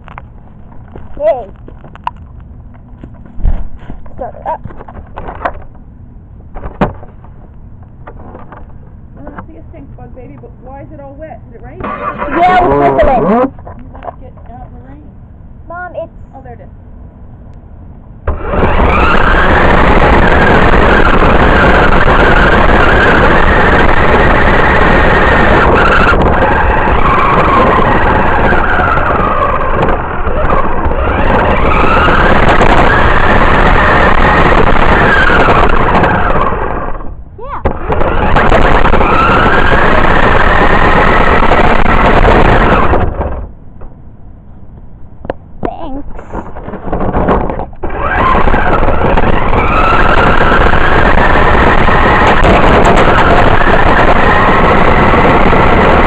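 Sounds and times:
wheel and road rattle: 0.0 - 15.1, 45.2 - 56.0
electric motor whine: 9.3 - 13.5, 18.2 - 43.5, 46.8 - 56.0.

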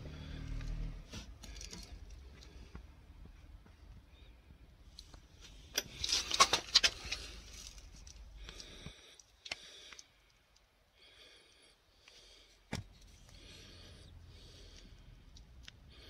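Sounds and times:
faint low rumble: 0.0 - 5.8
phone rustling and clicking: 5.0 - 10.1.

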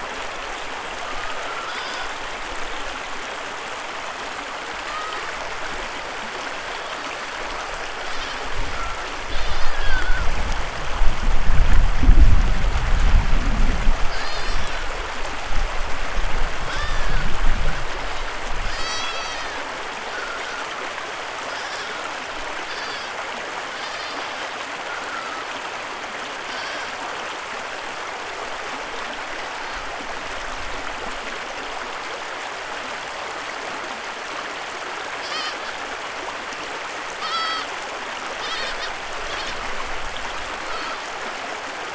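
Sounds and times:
creek water running: 0.0 - 41.9
short high calls: 37.2 - 37.7.

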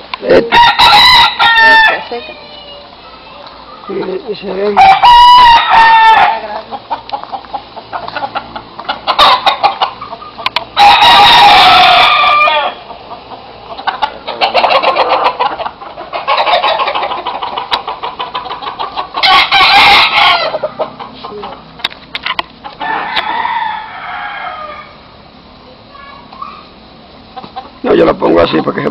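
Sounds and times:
rooster crowing loudly: 0.3 - 2.5, 4.8 - 6.5, 10.7 - 12.9, 19.2 - 20.8, 22.8 - 25.0
faint rooster calls: 22.8 - 25.1.

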